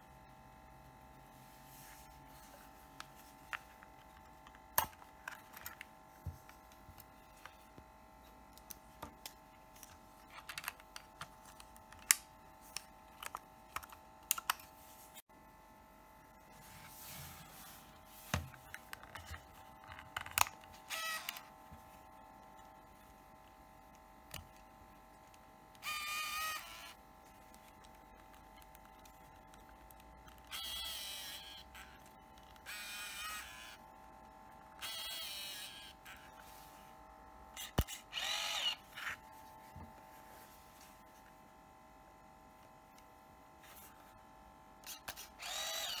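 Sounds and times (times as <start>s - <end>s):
camera motor whirring: 19.0s - 21.6s, 25.3s - 27.0s, 29.4s - 33.9s, 34.8s - 36.5s, 37.5s - 39.3s, 44.8s - 46.0s.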